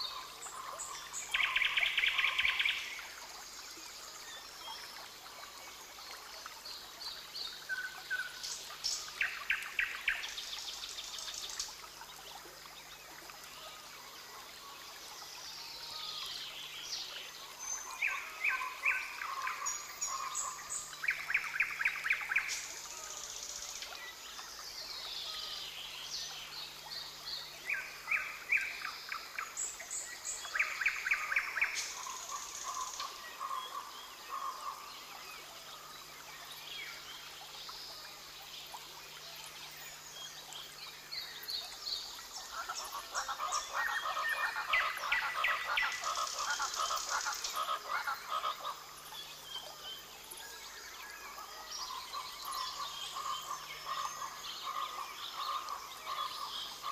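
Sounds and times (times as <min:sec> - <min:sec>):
frogs calling: 0:17.8 - 0:23.6, 0:27.6 - 0:35.9, 0:42.0 - 0:50.1, 0:50.9 - 0:56.9.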